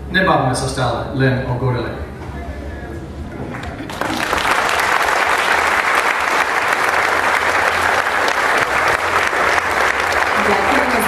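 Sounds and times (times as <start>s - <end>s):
audience applauding: 3.4s - 11.0s.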